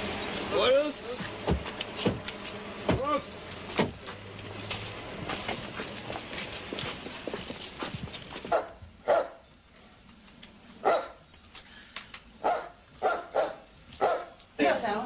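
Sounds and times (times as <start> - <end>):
dog barking: 8.5 - 9.4, 10.8 - 11.2, 12.4 - 14.4.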